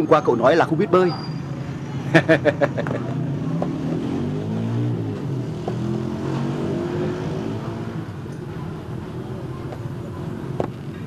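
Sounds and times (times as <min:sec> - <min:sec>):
vehicle engine passing: 0:01.7 - 0:08.3.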